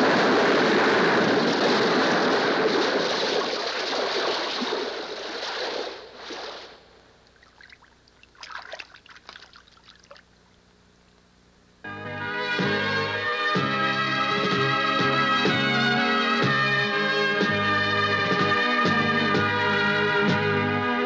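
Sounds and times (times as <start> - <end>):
water crashing and splashing: 0.0 - 6.8, 7.4 - 10.2.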